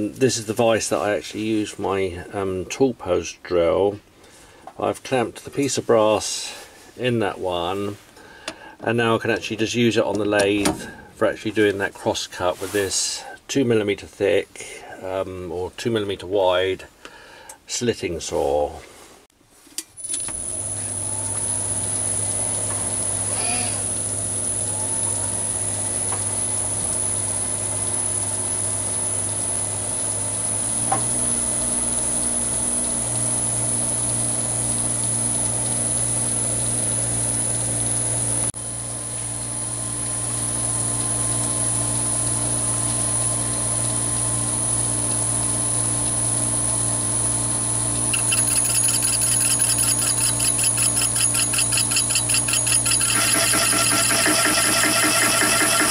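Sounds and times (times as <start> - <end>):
lathe motor whining: 48.1 - 55.9.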